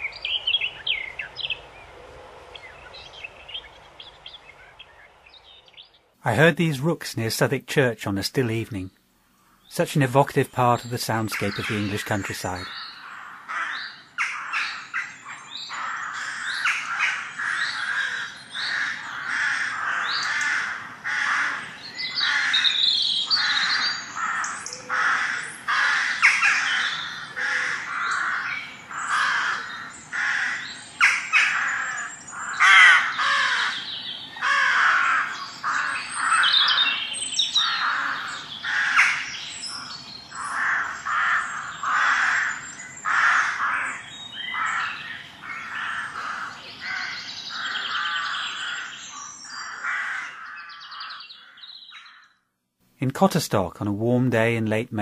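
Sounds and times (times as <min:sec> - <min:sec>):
rooks cawing: 0:12.6 - 0:52.4.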